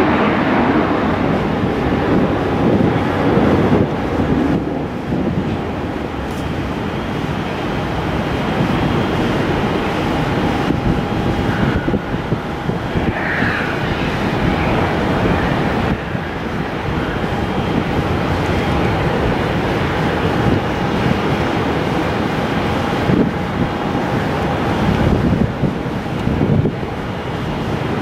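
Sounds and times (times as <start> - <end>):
turboprop engines whining: 0.0 - 28.0
wind buffeting microphone: 0.0 - 28.0.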